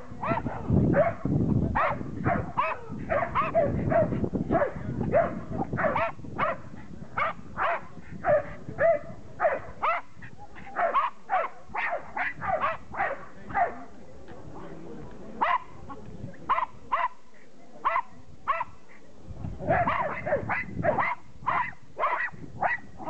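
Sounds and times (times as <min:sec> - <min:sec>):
dog barking: 0:00.2 - 0:13.9, 0:15.4 - 0:15.7, 0:16.5 - 0:17.2, 0:17.8 - 0:18.8, 0:19.7 - 0:22.9.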